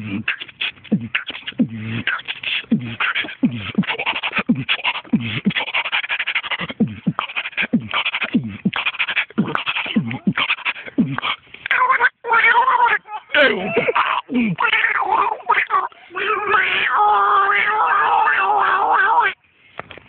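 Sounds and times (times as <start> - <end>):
person beatboxing: 0.0 - 11.8.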